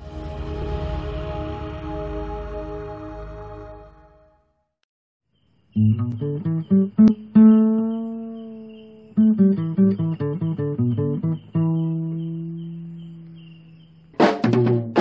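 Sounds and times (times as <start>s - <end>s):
plucked guitar music: 5.8s - 15.0s.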